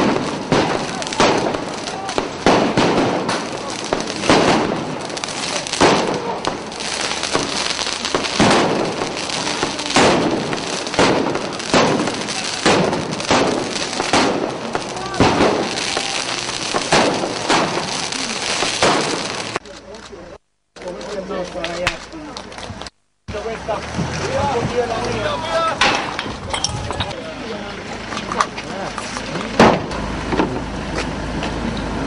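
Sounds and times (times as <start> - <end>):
fireworks banging and crackling: 0.0 - 32.0
people shouting: 0.7 - 2.4, 13.9 - 18.4.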